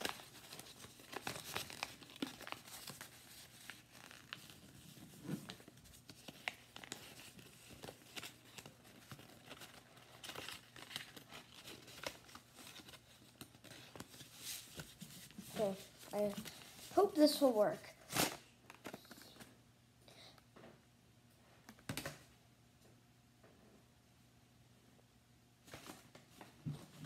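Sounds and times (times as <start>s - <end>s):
paper rustling and crinkling: 0.0s - 17.4s, 25.6s - 27.0s.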